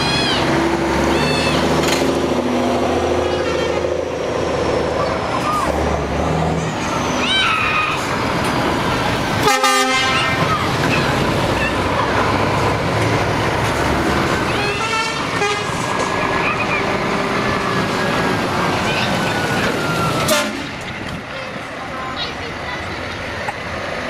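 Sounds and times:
trucks driving past: 0:00.0 - 0:24.0
truck horn blasts: 0:03.1 - 0:04.1, 0:09.4 - 0:10.5, 0:14.5 - 0:15.9, 0:20.2 - 0:20.7.

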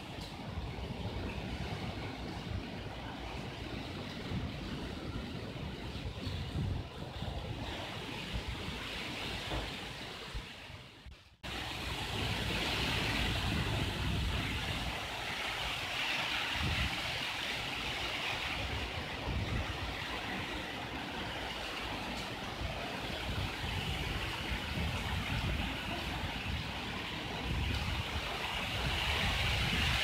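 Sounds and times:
wind buffeting microphone: 0:00.0 - 0:30.0
heavy driving rain hiss: 0:11.4 - 0:30.0.

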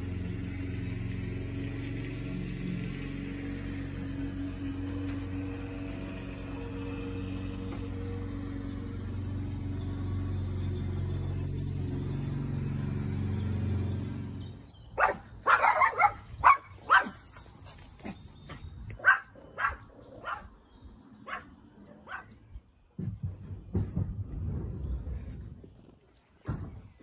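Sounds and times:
small dog barking: 0:15.0 - 0:17.2, 0:19.0 - 0:20.5, 0:21.2 - 0:22.4.

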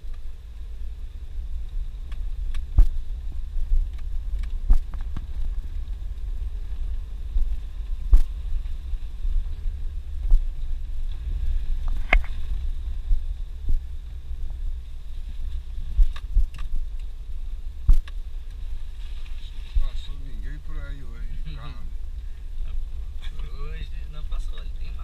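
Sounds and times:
low rumble of engine and tyres: 0:00.0 - 0:25.0
knocks and rattles over bumps: 0:02.0 - 0:14.5, 0:15.4 - 0:18.7.

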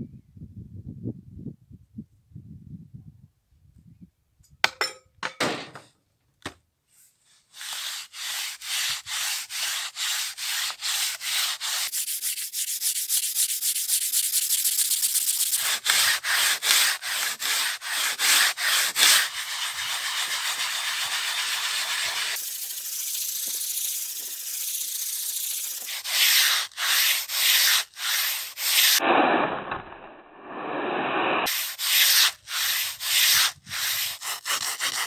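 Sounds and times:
gritty scrubbing of saw blade: 0:07.3 - 0:29.2, 0:31.4 - 0:35.0.

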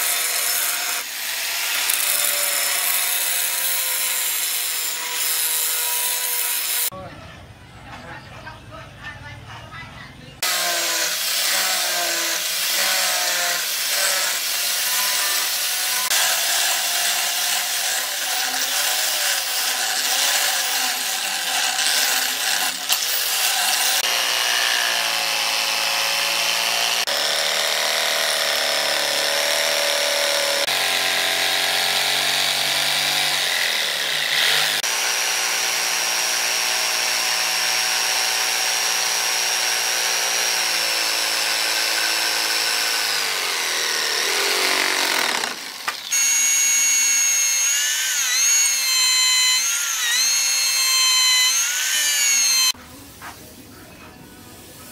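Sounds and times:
angle grinder grinding steel: 0:00.0 - 0:06.9, 0:10.4 - 0:52.8
jigsaw cutting wood: 0:00.0 - 0:06.9, 0:10.4 - 0:52.8.

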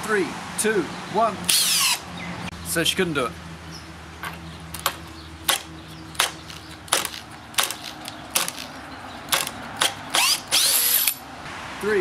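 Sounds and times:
drill clutch clicking: 0:04.8 - 0:11.2.

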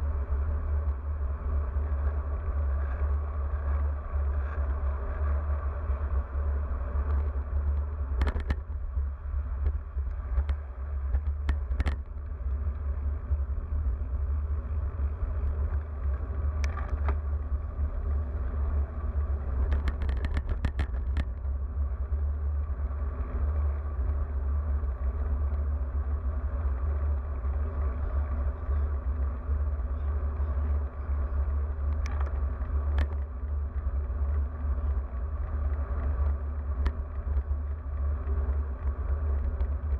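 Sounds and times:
bicycle tyre road noise: 0:00.0 - 0:39.9
brief clicks and rattles: 0:07.0 - 0:08.7, 0:19.5 - 0:21.4.

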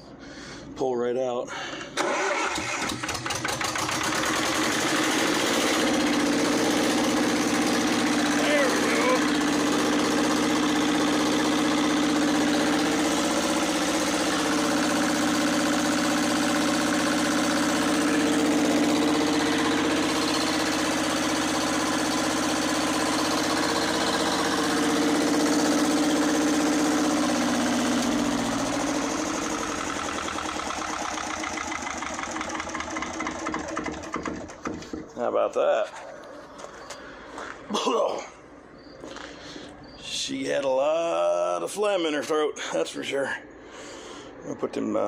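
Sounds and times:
diesel engine running rough: 0:02.0 - 0:35.4.

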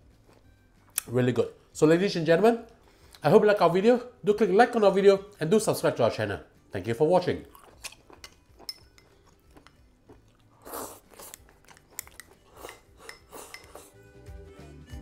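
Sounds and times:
person chewing: 0:07.5 - 0:14.0
chopsticks clicking against bowl: 0:07.6 - 0:09.8, 0:11.1 - 0:13.9.

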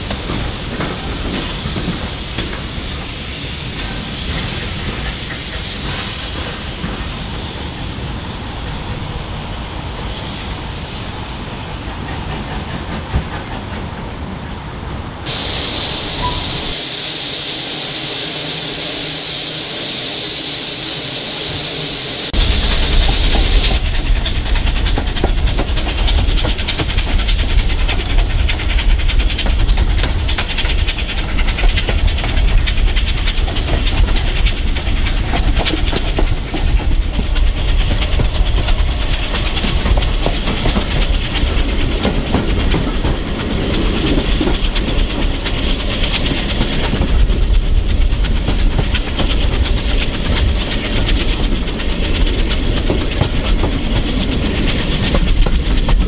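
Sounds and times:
train wheels clattering over rail joints: 0:00.0 - 0:10.4, 0:11.6 - 0:14.5, 0:22.3 - 0:56.0
wind rushing: 0:15.1 - 0:30.0.

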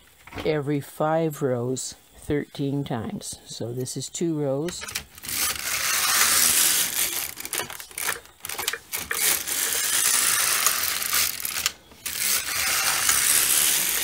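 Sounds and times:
knitting machine carriage swishing: 0:04.7 - 0:14.0.

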